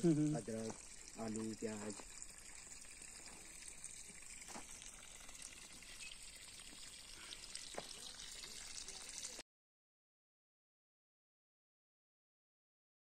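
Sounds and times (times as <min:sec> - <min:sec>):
faint outdoor hiss: 0:00.0 - 0:09.4.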